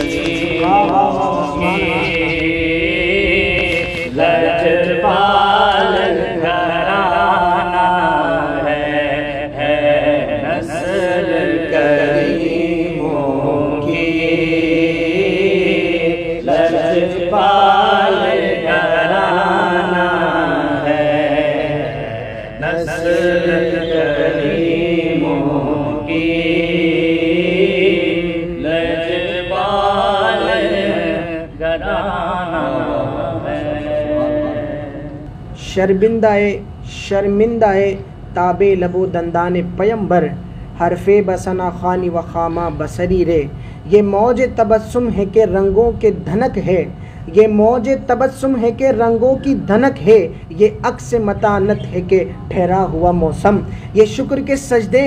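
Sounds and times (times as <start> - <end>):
person chanting: 0.0 - 36.2.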